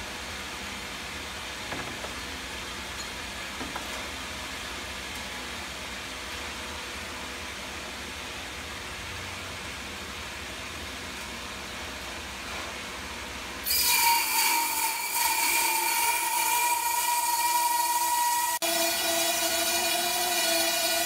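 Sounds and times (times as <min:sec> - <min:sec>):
high-pitched saw cutting whine: 0:13.6 - 0:21.0
sawmill machine noise: 0:13.6 - 0:21.0.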